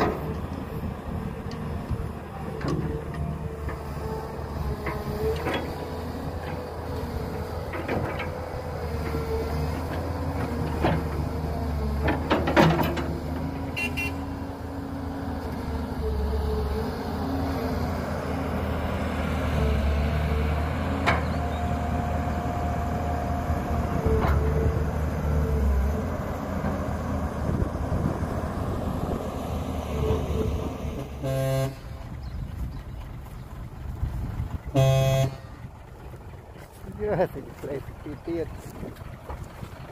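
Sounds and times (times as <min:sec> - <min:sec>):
heavy diesel engines running: 0:00.0 - 0:39.9
sharp knocks and clanks: 0:12.0 - 0:13.2
short horn toot: 0:13.7 - 0:14.2, 0:31.2 - 0:32.0, 0:34.8 - 0:35.5.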